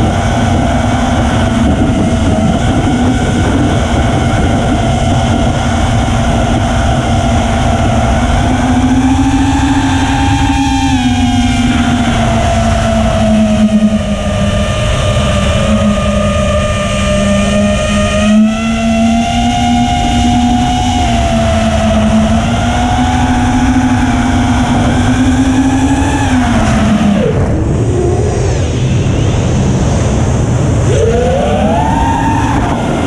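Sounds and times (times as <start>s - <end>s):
quadcopter motors whining: 0.0s - 33.0s.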